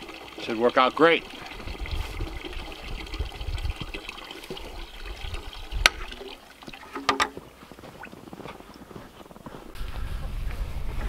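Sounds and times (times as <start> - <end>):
water trickling: 0.0 - 8.2
plastic bucket clattering: 6.7 - 7.4.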